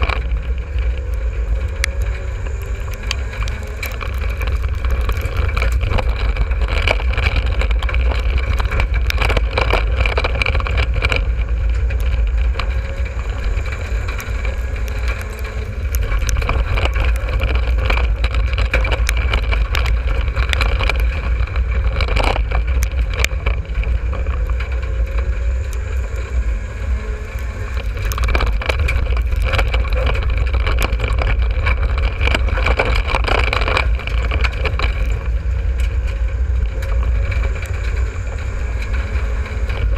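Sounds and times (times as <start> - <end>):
race car engine running hard: 0.0 - 39.9.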